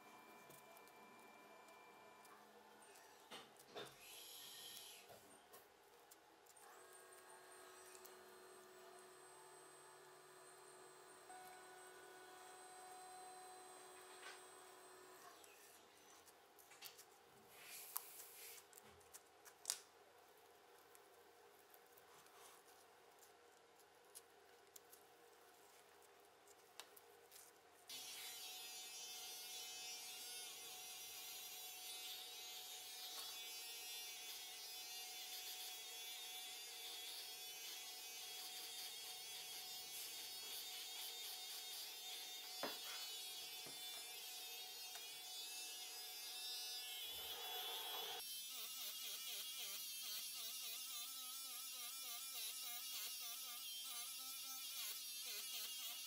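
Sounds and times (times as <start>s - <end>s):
electric hair clippers buzzing: 7.2s - 15.4s, 27.9s - 56.0s.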